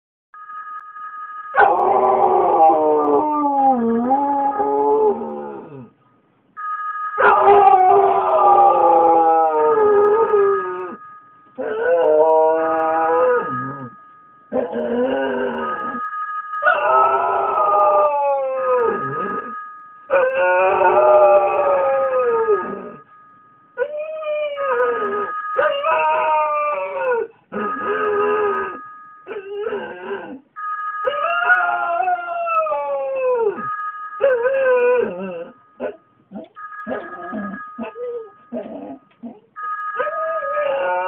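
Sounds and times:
dog howling: 7.2s - 11.0s, 20.1s - 23.0s
two-note electronic tone: 36.6s - 40.1s.

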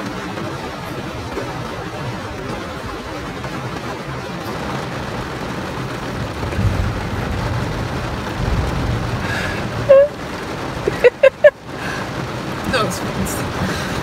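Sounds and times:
heavy rain on car roof: 0.0s - 14.0s
low rumble: 6.0s - 10.4s
woman squealing: 9.9s - 10.2s.

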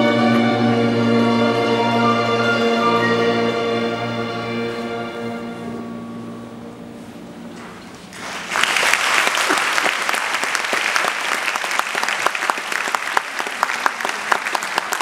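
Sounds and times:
music: 0.0s - 7.8s
audience applause: 8.1s - 15.0s.

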